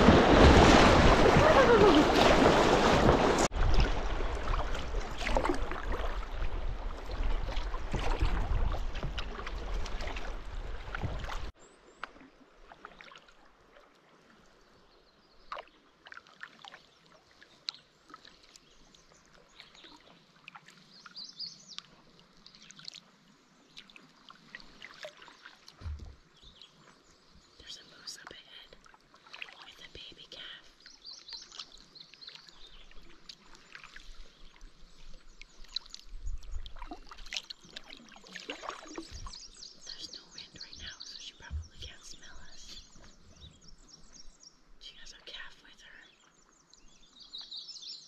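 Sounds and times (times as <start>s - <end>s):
water drips and ticks: 15.5s - 20.8s, 21.7s - 23.1s, 27.6s - 42.4s
bird chirp: 38.8s - 48.0s.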